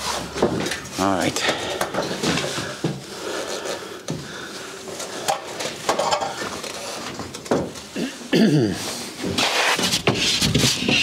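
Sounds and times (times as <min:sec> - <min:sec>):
drywall boards knocking and scraping: 0:00.0 - 0:03.0, 0:05.3 - 0:07.9, 0:09.2 - 0:11.0.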